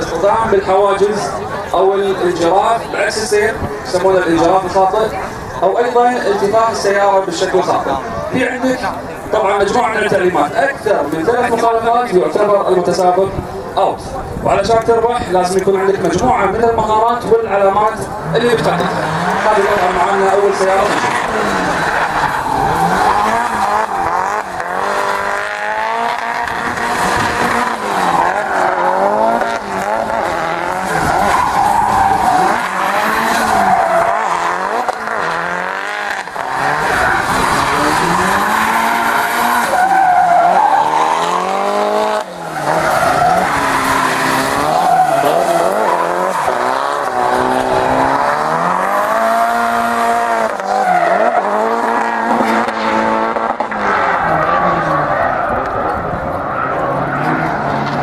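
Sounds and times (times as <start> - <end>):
car engine revving: 17.3 - 58.0
tyres screeching on tarmac: 18.0 - 58.0.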